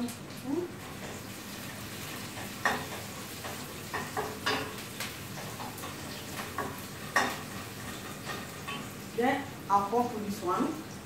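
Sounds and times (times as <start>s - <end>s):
onions sizzling in hot oil: 0.0s - 11.0s
utensil scraping a pan: 1.9s - 9.0s.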